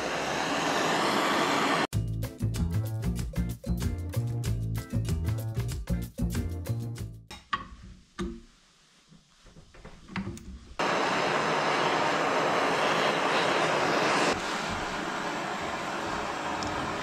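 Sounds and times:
gas torch flame hissing: 0:00.0 - 0:01.9, 0:10.8 - 0:17.0.

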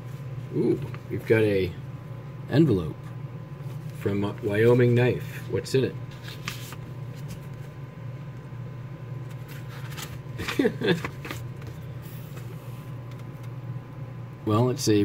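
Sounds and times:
low room hum: 0:00.0 - 0:15.0
paper rustling: 0:06.1 - 0:07.8, 0:09.2 - 0:13.5.

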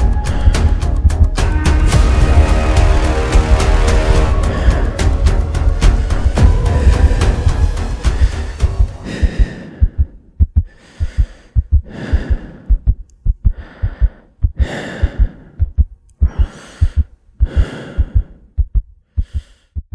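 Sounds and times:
heavy breathing: 0:00.0 - 0:01.3, 0:02.9 - 0:19.8
heartbeat thumps: 0:00.0 - 0:01.4, 0:02.0 - 0:19.9
music: 0:00.0 - 0:09.6.

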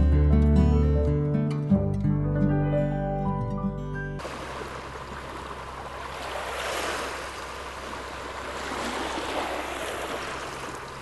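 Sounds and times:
water rushing in waves: 0:04.2 - 0:11.0.

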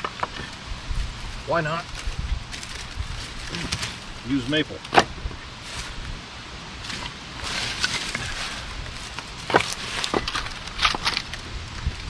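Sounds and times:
firewood scraping: 0:00.0 - 0:06.2, 0:06.8 - 0:12.0
firewood pieces knocking: 0:09.1 - 0:11.4.

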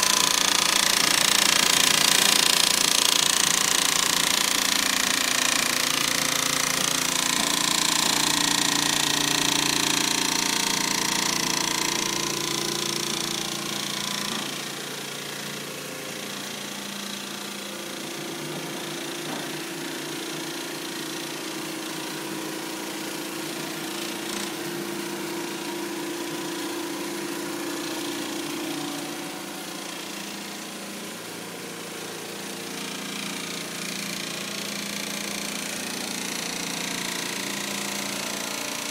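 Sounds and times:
machine hum: 0:00.0 - 0:18.3
quilting machine stitching chatter: 0:00.0 - 0:38.9.

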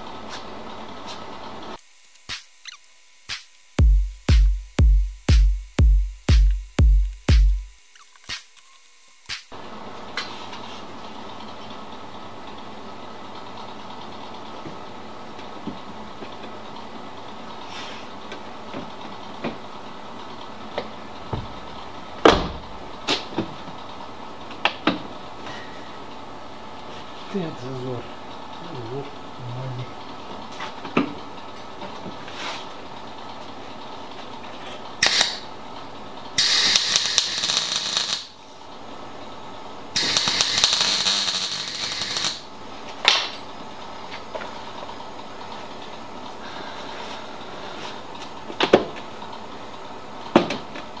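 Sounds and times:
welder crackling: 0:01.7 - 0:09.6, 0:35.0 - 0:35.5, 0:36.4 - 0:38.4, 0:40.0 - 0:42.5.

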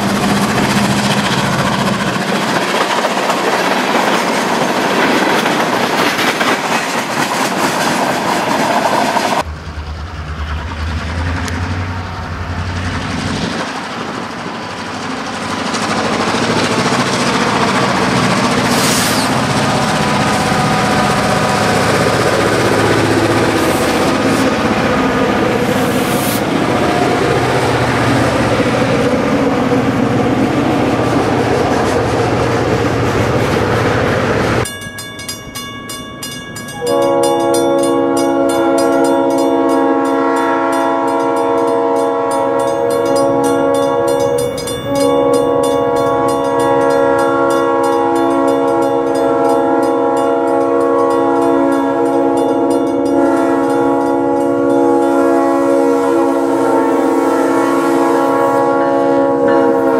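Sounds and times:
diesel locomotive engines: 0:00.0 - 0:59.9
train wheels rumbling on rails: 0:00.0 - 0:59.9
locomotive air horn: 0:18.7 - 0:26.6, 0:36.7 - 0:59.9
crossing bell ringing: 0:34.6 - 0:55.5, 0:59.4 - 0:59.9.

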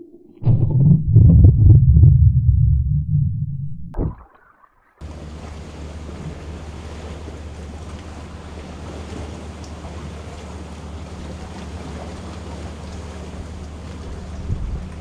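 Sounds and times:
wind on microphone: 0:00.0 - 0:03.5, 0:14.2 - 0:15.0
muffled underwater rumble: 0:00.0 - 0:04.3, 0:05.0 - 0:15.0.

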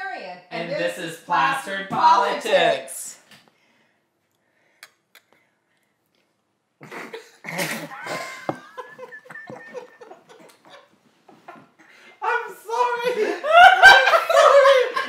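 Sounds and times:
adults coughing: 0:06.8 - 0:10.7
adults laughing: 0:07.5 - 0:11.8, 0:13.0 - 0:15.0.

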